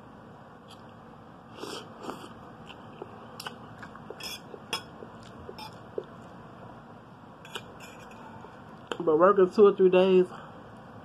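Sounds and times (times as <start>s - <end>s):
chewing and smacking: 2.0s - 6.4s
fork clinking on a plate: 4.2s - 4.9s.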